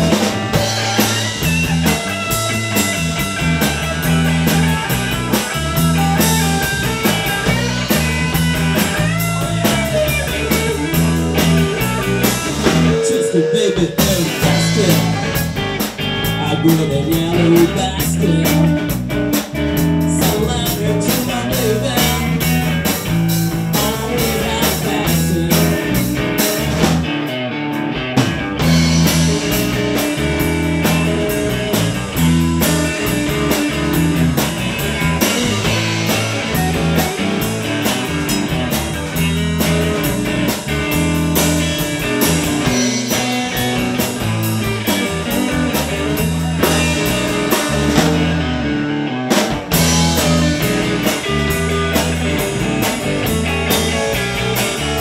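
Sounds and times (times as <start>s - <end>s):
drum kit beat: 0.0s - 27.3s, 28.0s - 55.0s
electric bass: 0.0s - 55.0s
electric guitar: 0.0s - 55.0s
man singing: 12.6s - 18.9s, 20.0s - 22.7s, 23.7s - 26.1s.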